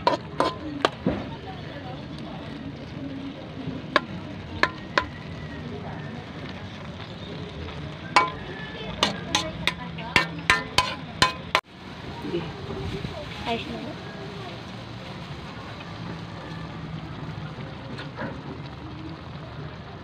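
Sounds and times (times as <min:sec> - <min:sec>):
metal spatula scraping wok: 0:00.0 - 0:01.6, 0:03.9 - 0:05.5, 0:08.1 - 0:11.7
low sizzle in pan: 0:00.0 - 0:20.0.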